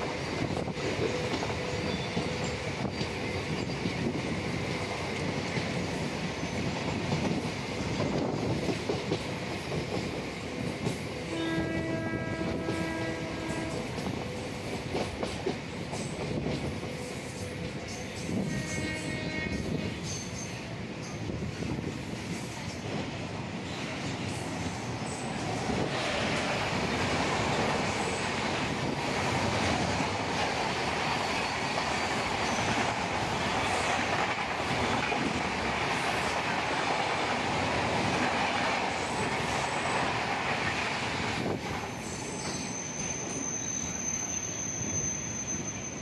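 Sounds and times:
freight train rolling past: 0.0s - 46.0s
high wheel squeals: 41.4s - 46.0s.

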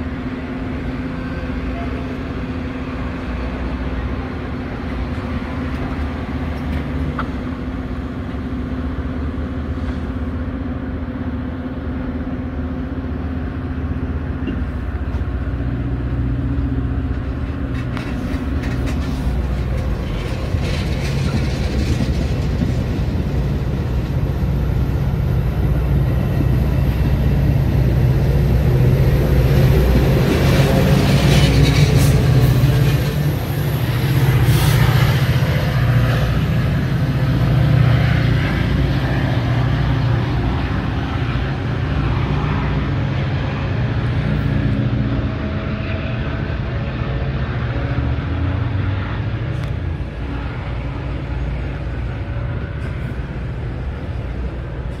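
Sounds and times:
diesel locomotive engine hum: 0.0s - 55.0s
wheels clicking over rail joints: 17.0s - 41.8s.

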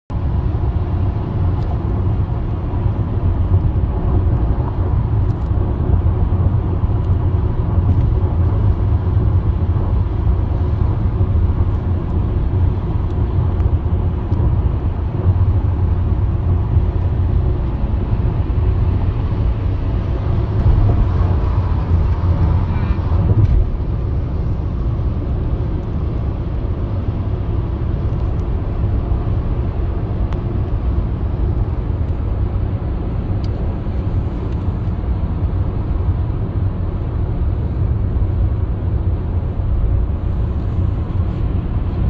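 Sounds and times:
car road and engine noise: 0.1s - 42.0s.

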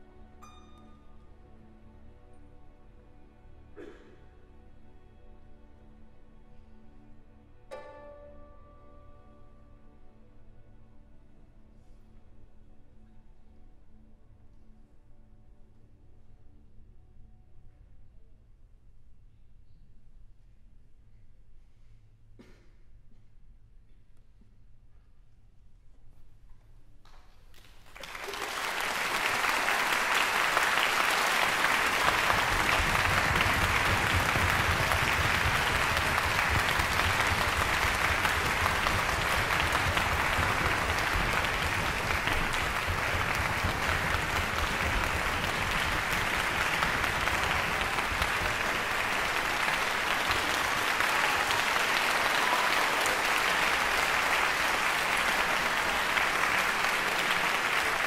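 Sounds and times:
audience applauding: 27.6s - 58.0s.

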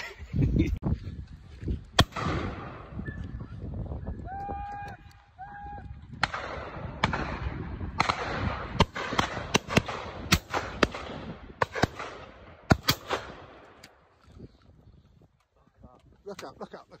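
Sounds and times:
shotgun shots with echo: 2.0s - 2.9s, 6.2s - 13.7s.

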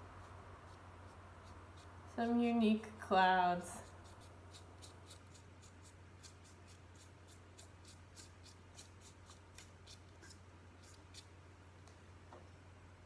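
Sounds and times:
low electrical hum: 0.0s - 13.0s
brush dabbing on paper: 0.2s - 2.6s, 3.7s - 11.4s.

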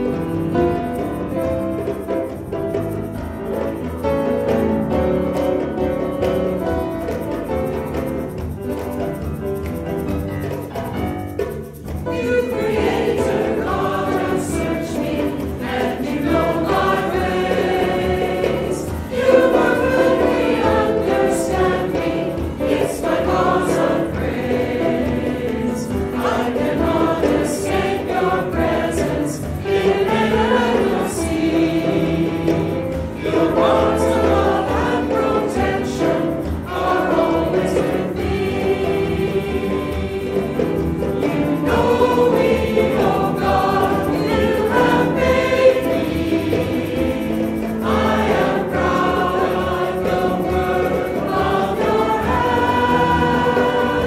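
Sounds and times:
instrumental accompaniment: 0.0s - 54.0s
choir singing a hymn: 11.6s - 54.0s.

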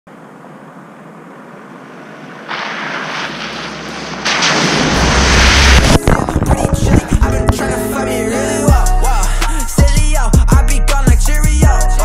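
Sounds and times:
rising intro sound effect: 2.2s - 9.2s
deep rumble: 3.5s - 9.4s
opening music: 5.8s - 12.0s.

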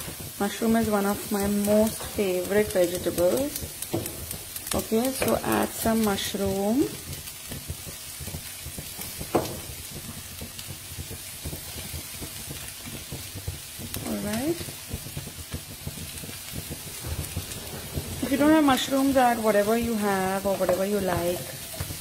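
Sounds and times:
vegetables sizzling in a pan: 0.0s - 22.0s
wooden spatula tapping a pan: 0.0s - 22.0s.

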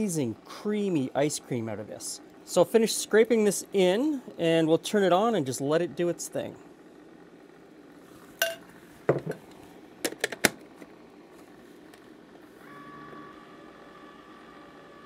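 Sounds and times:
ice cream maker humming: 0.0s - 15.0s.

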